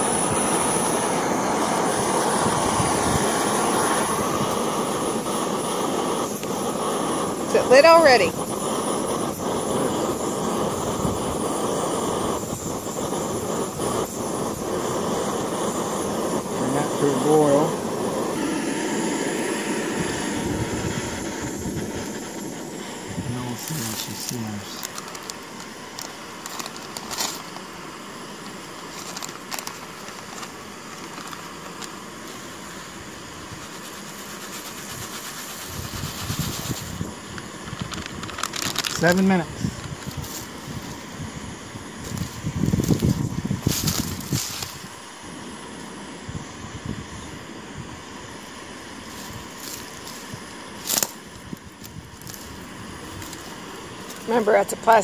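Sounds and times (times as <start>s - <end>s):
gas stove flame rushing: 0.0s - 55.0s
packet rustling: 23.5s - 27.8s, 28.7s - 32.5s, 33.6s - 41.1s, 42.0s - 44.9s, 49.1s - 54.3s.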